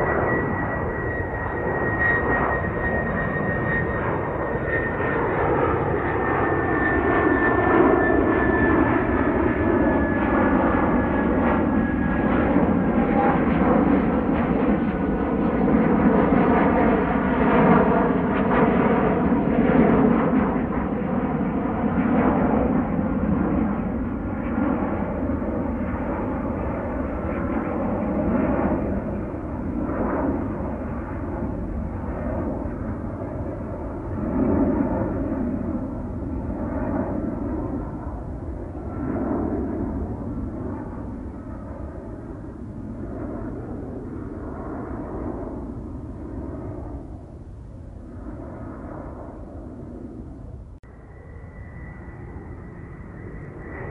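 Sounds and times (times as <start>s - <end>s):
distant jet airliner rumble: 0.0s - 53.9s.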